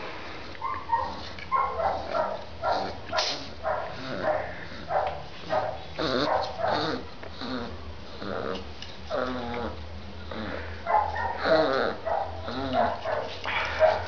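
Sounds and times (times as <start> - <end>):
puppy yipping and growling: 6.0 - 14.0.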